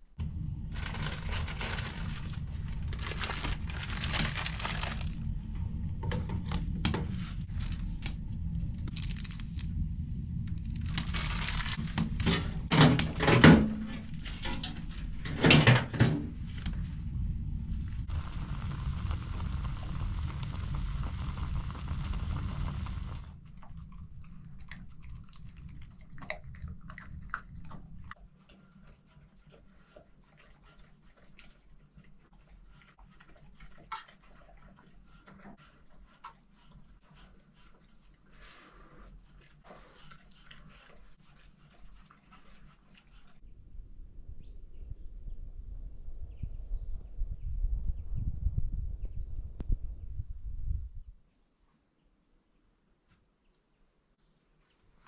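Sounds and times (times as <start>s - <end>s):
low rumble: 0.0s - 28.2s, 43.5s - 51.2s
kindling crackling in a fire: 0.2s - 13.2s, 16.2s - 28.2s.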